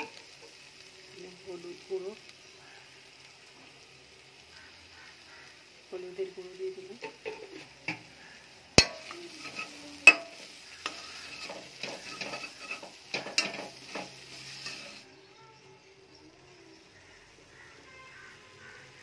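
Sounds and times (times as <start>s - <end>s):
onions sizzling in oil: 0.0s - 19.0s
spatula stirring and scraping: 6.9s - 15.1s.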